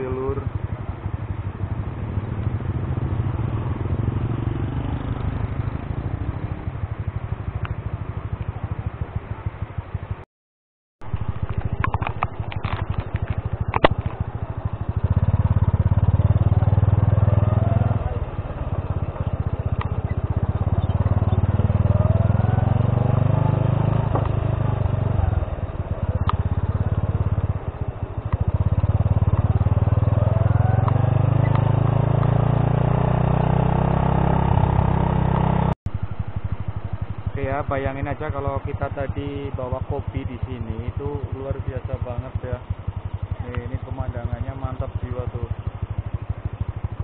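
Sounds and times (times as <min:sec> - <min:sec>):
motorcycle engine revving: 0:00.0 - 0:10.2, 0:11.0 - 0:47.0
sharp clicks: 0:11.1 - 0:14.2.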